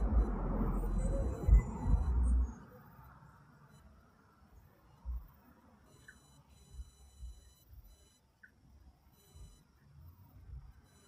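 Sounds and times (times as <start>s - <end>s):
distant vehicles rumbling: 0.0s - 3.6s
faint high whine: 0.0s - 11.0s.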